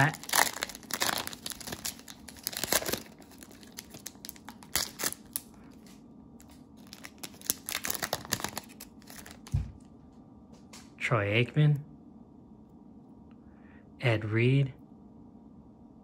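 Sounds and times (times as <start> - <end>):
cellophane wrapper crinkling and tearing: 0.0 - 9.6.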